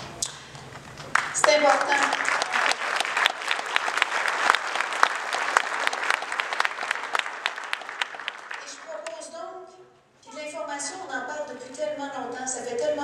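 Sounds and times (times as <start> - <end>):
audience clapping: 0.2 - 9.3.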